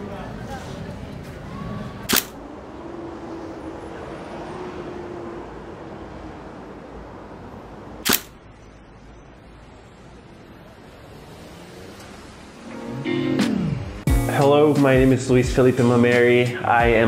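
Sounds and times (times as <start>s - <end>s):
low background noise: 0.0s - 13.2s
camera shutter clicks: 2.1s - 2.4s, 8.1s - 8.4s.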